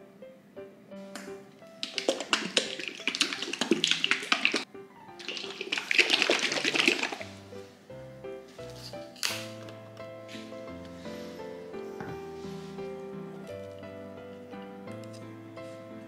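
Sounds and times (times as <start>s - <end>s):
drink sloshing in shaken bottle: 1.8s - 4.6s, 5.2s - 7.4s
plucked-string background music: 7.2s - 16.0s.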